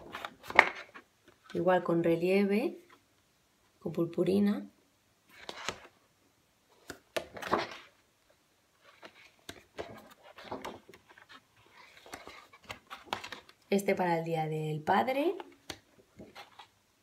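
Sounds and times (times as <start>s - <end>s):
paper pages turning: 0.0s - 1.5s, 5.3s - 6.0s, 6.7s - 8.0s, 8.8s - 13.7s, 15.4s - 16.8s.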